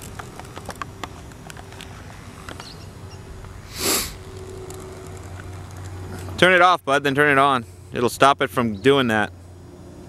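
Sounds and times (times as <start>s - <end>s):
faint steady hum: 0.0s - 10.0s
short sniff: 3.7s - 4.2s.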